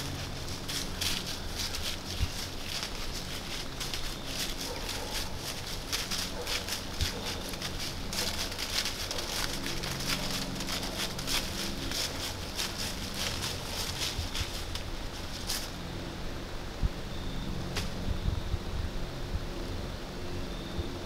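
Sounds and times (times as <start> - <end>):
hooves crunching dry leaves: 0.0 - 16.3.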